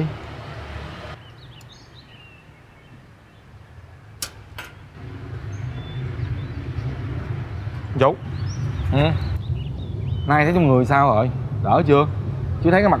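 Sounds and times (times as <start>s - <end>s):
low hum: 3.9s - 13.0s.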